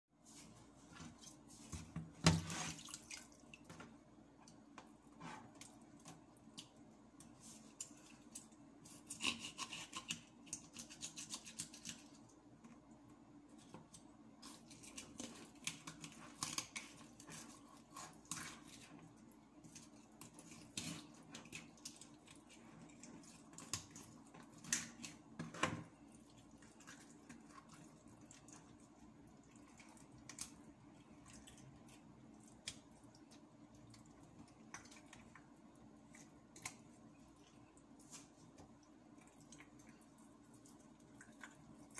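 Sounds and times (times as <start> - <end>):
faint steady hum: 0.2 - 41.9
knife scraping fish: 8.8 - 12.2, 14.4 - 18.9, 19.6 - 22.6.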